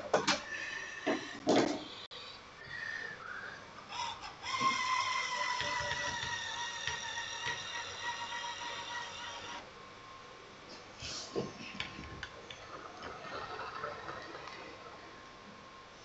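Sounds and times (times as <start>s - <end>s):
small electric motor whining: 4.4s - 9.6s.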